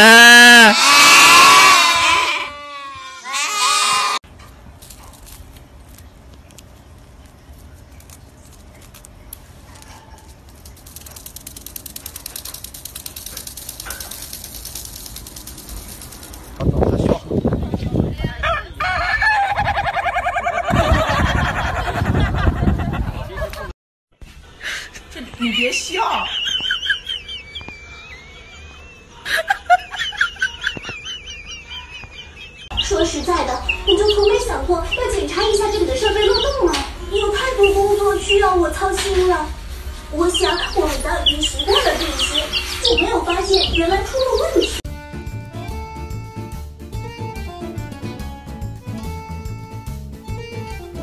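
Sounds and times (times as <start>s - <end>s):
person laughing: 0.0s - 0.8s, 20.4s - 23.7s, 24.6s - 32.6s.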